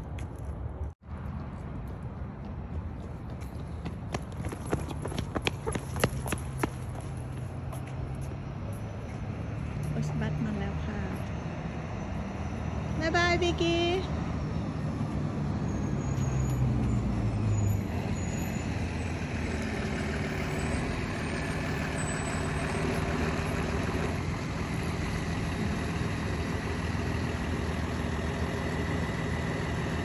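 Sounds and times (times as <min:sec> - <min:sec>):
bus engine running: 0:14.0 - 0:30.0.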